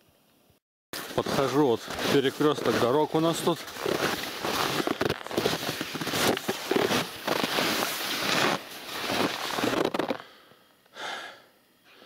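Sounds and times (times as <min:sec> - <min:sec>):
skis crunching on snow: 0:01.0 - 0:10.2.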